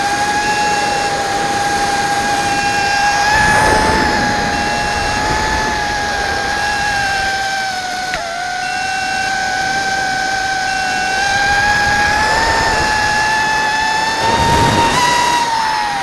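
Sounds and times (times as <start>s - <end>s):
quadcopter motors whining: 0.0s - 16.0s
rush of noise: 0.4s - 8.5s, 11.0s - 14.8s.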